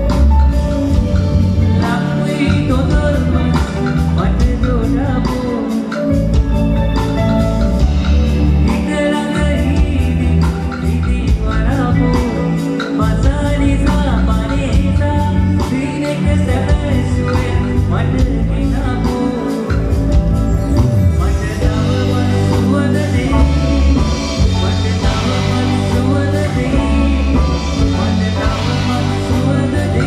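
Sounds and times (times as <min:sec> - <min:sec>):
live band playing: 0:00.0 - 0:30.0
man singing: 0:00.0 - 0:30.0.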